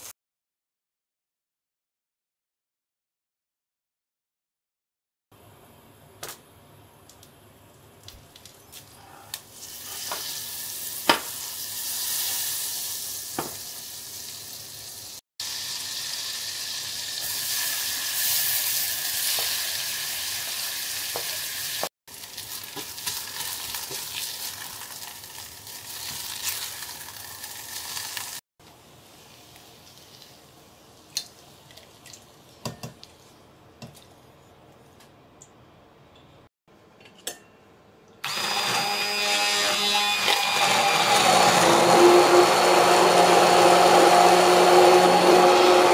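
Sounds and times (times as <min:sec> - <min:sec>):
onions sizzling in butter: 0:09.5 - 0:28.4.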